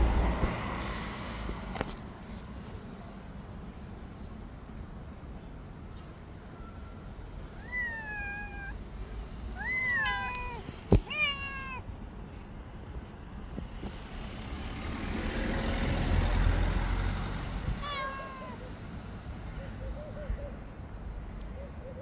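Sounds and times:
cat meowing: 0:07.6 - 0:08.8, 0:09.6 - 0:11.8, 0:17.8 - 0:18.7.

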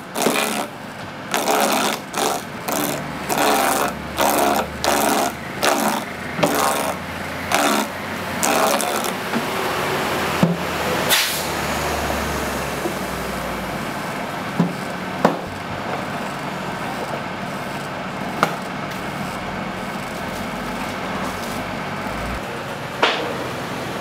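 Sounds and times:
cleaver chopping coconut: 0:00.0 - 0:09.5, 0:14.6 - 0:16.1
low rumble of passing traffic: 0:00.0 - 0:24.0
street noise: 0:00.0 - 0:24.0.

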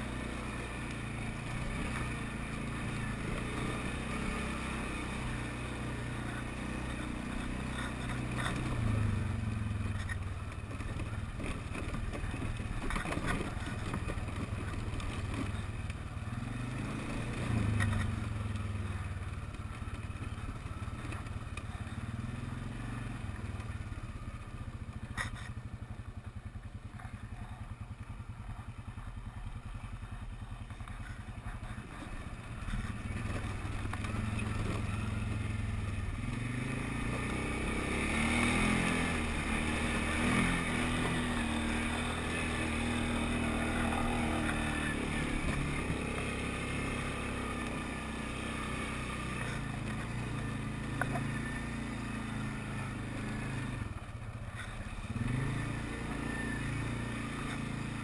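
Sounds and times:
quad engine revving: 0:00.0 - 0:58.0
sharp knocks over bumps: 0:10.0 - 0:16.0.

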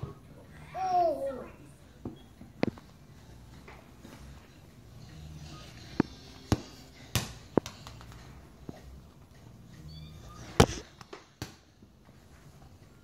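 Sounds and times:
rubber ball bouncing on tile floor: 0:05.9 - 0:08.8, 0:10.6 - 0:11.7.

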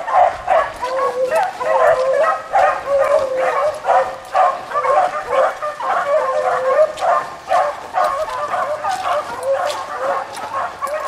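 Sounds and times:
pack of hounds baying: 0:00.0 - 0:11.0.

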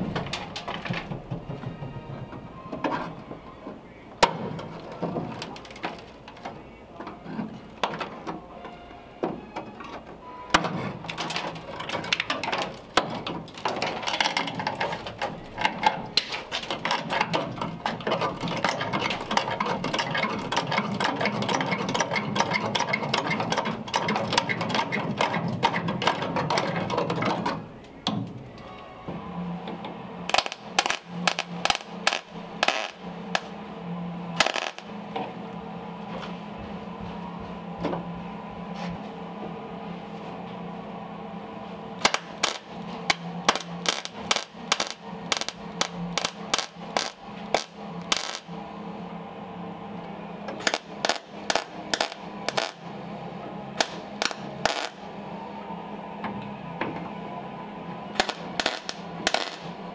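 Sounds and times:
mig welder crackling: 0:00.0 - 0:02.0, 0:04.2 - 0:06.7, 0:10.5 - 0:28.7, 0:29.6 - 0:35.6, 0:41.9 - 0:48.8, 0:50.0 - 0:55.3, 0:58.0 - 0:59.9.

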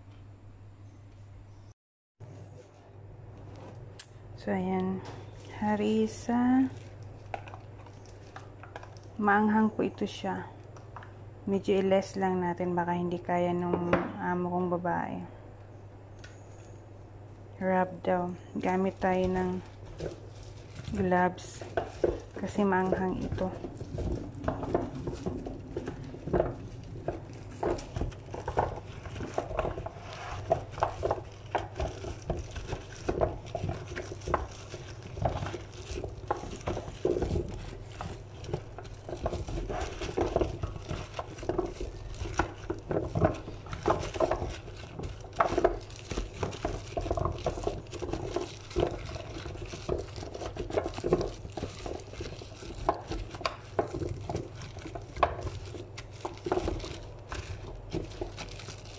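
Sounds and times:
low steady hum: 0:00.0 - 0:58.9
squash cubes clattering in metal tray: 0:18.7 - 0:58.8.

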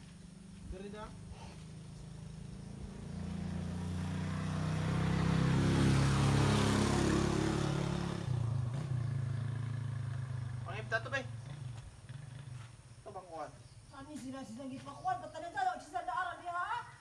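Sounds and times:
vehicle engine passing by: 0:00.0 - 0:12.9.

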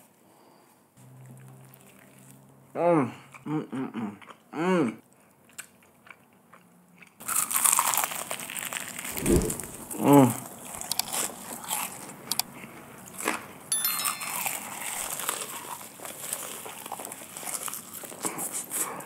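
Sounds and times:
crunchy chewing of fried chicken: 0:01.0 - 0:09.2, 0:10.7 - 0:13.6, 0:15.1 - 0:19.0.

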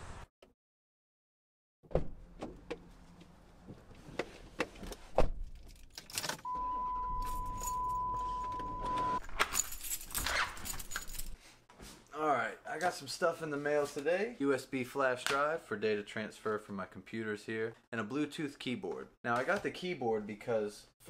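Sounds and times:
car electronic warning tone: 0:06.5 - 0:09.2
keys jangling: 0:09.2 - 0:11.4.

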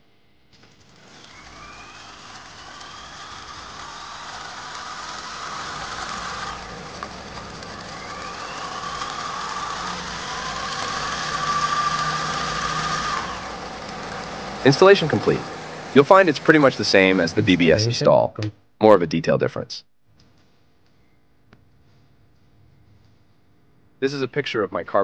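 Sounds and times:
electric bike motor whine: 0:00.6 - 0:17.8.

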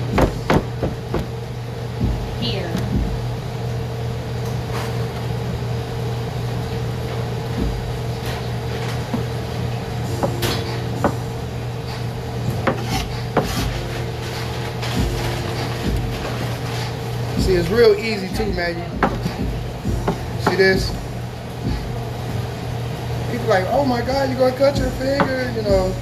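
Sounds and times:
steady hum: 0:00.0 - 0:26.0
knife chopping on cutting board: 0:00.1 - 0:01.3, 0:12.6 - 0:13.9, 0:19.0 - 0:20.9.

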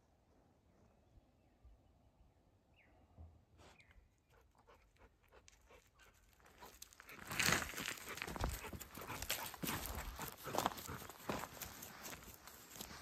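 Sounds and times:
dog panting: 0:04.3 - 0:07.2, 0:07.8 - 0:12.2
footsteps crunching on gravel: 0:06.2 - 0:13.0.

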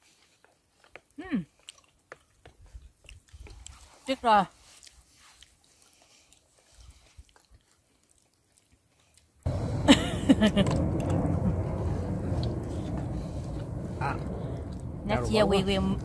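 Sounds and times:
faint chewing with clicks: 0:00.0 - 0:09.5
steady low rumble: 0:09.5 - 0:16.0.

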